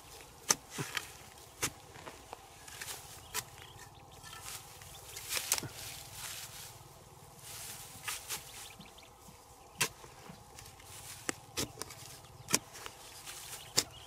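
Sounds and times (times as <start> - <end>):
metal bar chopping into soil: 0.4 - 1.8, 11.2 - 12.9, 13.7 - 14.0.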